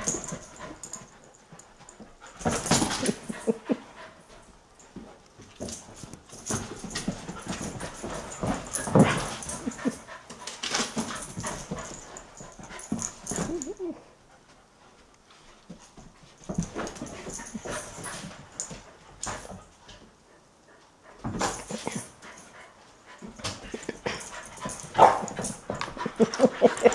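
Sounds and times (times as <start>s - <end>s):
puppy whines and yips: 13.4s - 14.0s.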